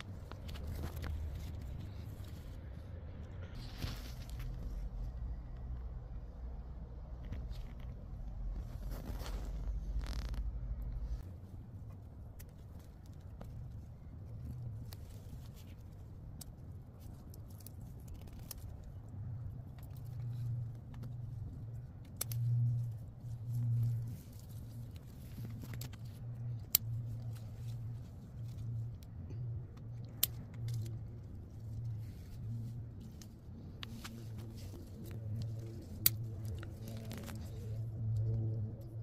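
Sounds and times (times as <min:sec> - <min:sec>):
low hum: 0:00.0 - 0:39.0
stems snapping: 0:12.4 - 0:29.1, 0:29.7 - 0:38.9.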